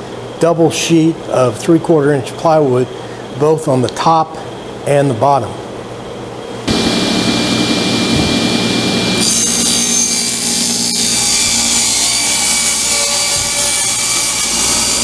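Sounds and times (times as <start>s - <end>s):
saw blade cutting plywood: 6.7s - 15.0s
table saw motor hum: 6.7s - 15.0s.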